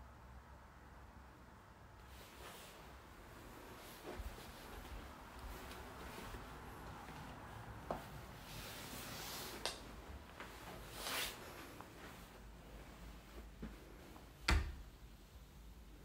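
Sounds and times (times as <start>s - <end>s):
footsteps: 2.1s - 14.3s
brushing swish: 8.1s - 9.9s, 10.6s - 11.8s.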